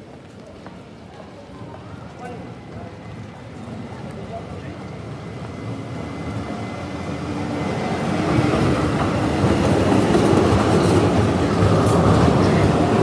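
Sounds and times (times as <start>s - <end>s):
tram passing on rails: 0.0s - 13.0s.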